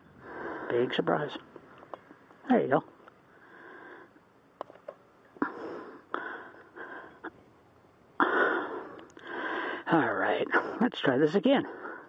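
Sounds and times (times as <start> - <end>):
short breaths: 3.3 - 4.3, 8.2 - 9.9.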